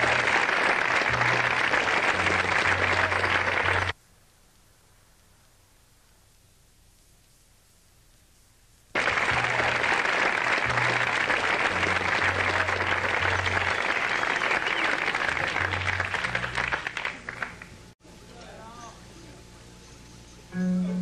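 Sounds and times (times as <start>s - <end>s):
low bass notes: 0.0s - 3.9s, 9.0s - 9.9s, 10.6s - 13.8s, 15.2s - 16.8s, 20.5s - 21.0s
audience applauding: 0.0s - 4.0s, 8.9s - 18.0s.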